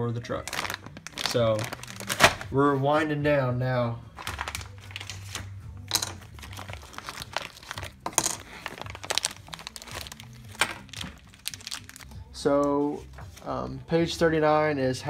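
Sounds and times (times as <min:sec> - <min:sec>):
plastic bags crinkling: 0:00.3 - 0:02.6, 0:04.1 - 0:12.2.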